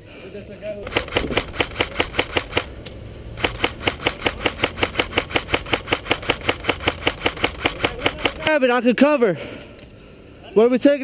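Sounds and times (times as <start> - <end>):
airsoft rifle rapid firing: 0.9 - 2.7, 3.4 - 8.6.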